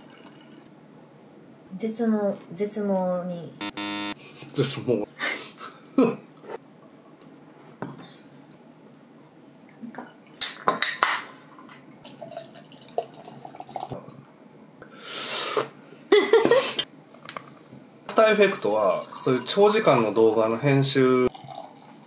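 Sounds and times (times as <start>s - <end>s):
beer pouring into glass: 12.0s - 14.1s, 18.6s - 22.0s.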